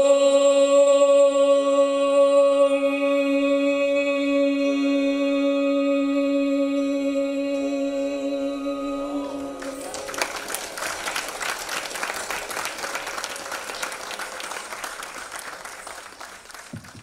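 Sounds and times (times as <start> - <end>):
audience applause: 9.6 - 17.0.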